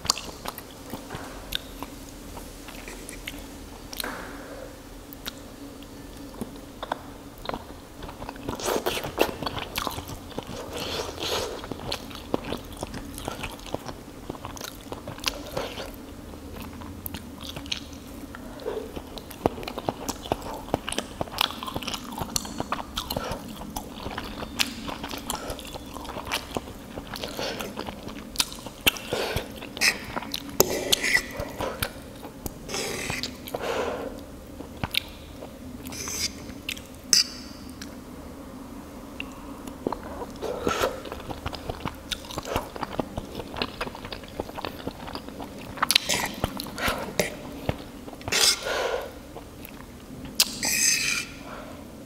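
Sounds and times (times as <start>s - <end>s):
wet chewing and mouth clicks: 0.0s - 4.1s, 5.1s - 38.0s, 39.2s - 51.2s
fork scraping on ceramic plate: 48.3s - 48.7s, 50.6s - 51.4s.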